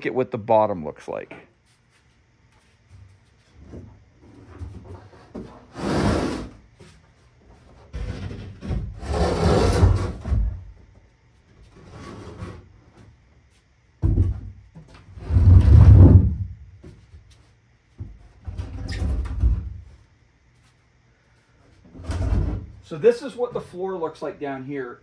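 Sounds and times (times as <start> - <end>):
wooden edges scraping on concrete: 4.7 - 6.6, 7.9 - 10.5.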